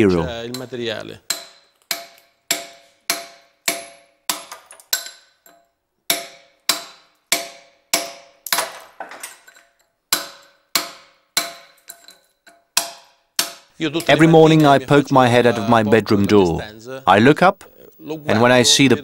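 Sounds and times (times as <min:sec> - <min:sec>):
hammer striking metal chisel: 0:00.5 - 0:15.0.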